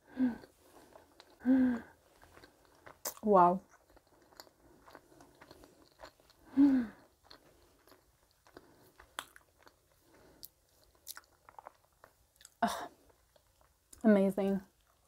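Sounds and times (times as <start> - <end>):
close chewing with crunches: 0.3 - 14.0, 14.6 - 15.0
wet mouth clicks: 2.1 - 12.6.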